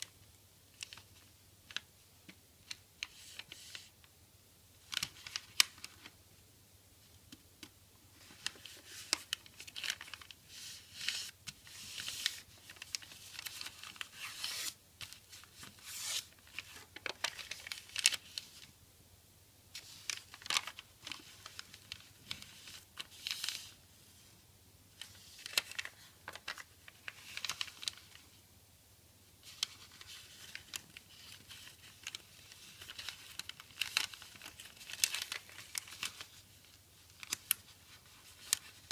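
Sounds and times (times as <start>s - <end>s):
paper folding and crinkling: 0.0s - 1.9s, 2.6s - 3.9s, 4.8s - 6.2s, 8.1s - 18.7s, 19.7s - 24.3s, 25.0s - 28.4s, 29.4s - 38.9s.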